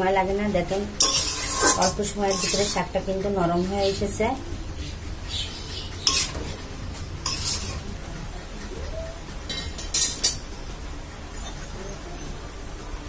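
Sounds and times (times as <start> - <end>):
spatula clinking against pan: 1.0 - 2.8, 6.1 - 6.5
metal spatula scraping greens in pan: 1.0 - 3.0, 6.0 - 7.9.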